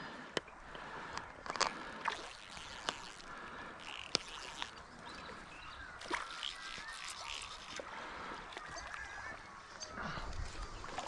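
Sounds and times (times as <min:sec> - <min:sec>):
faint river wash: 0:00.0 - 0:11.0
birds calling: 0:03.3 - 0:11.0
fish splashing at water surface: 0:06.0 - 0:09.2.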